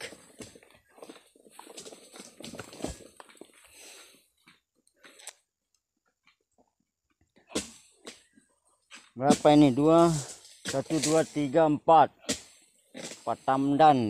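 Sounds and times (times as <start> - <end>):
footsteps through dry undergrowth: 0.0 - 5.2.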